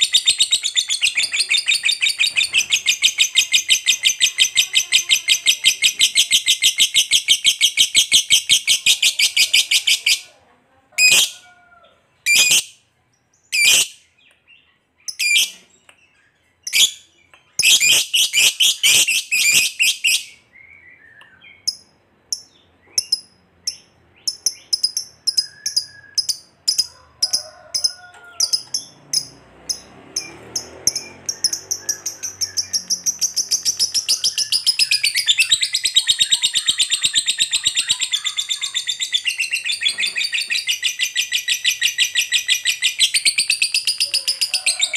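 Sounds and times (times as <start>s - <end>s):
lovebird rapid chattering trill: 21.6s - 44.5s.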